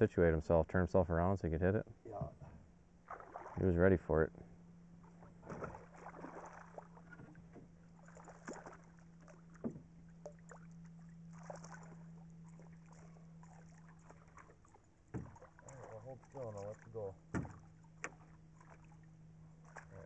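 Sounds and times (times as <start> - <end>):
low hum: 0.0 - 20.0
faint water splashes: 3.0 - 20.0
small knocks: 15.1 - 15.4.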